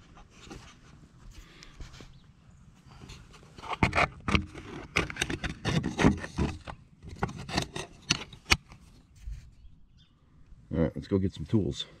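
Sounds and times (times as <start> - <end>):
clicks knocks and scrapes: 3.0 - 9.6
sleeve rubbing against phone: 8.8 - 9.6.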